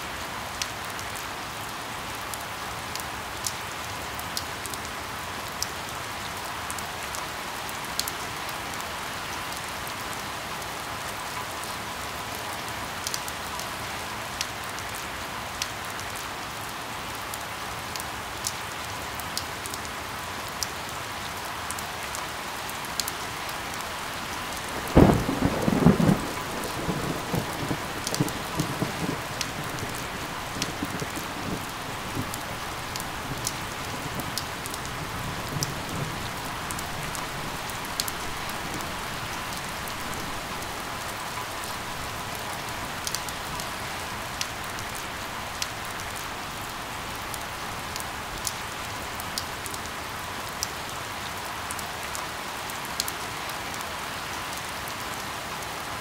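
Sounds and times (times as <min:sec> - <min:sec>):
steady rain: 0:00.0 - 0:56.0
thunder rumbling: 0:24.6 - 0:40.8.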